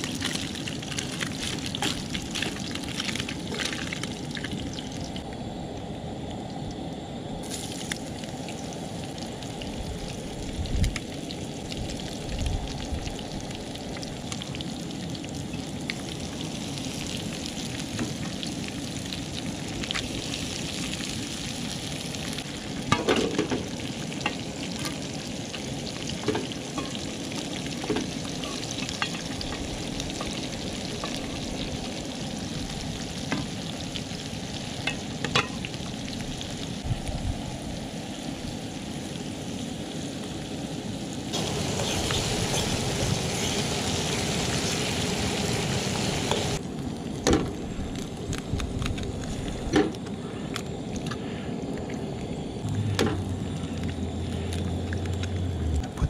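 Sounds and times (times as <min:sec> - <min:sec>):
food sizzling in a skillet: 0:07.4 - 0:46.6.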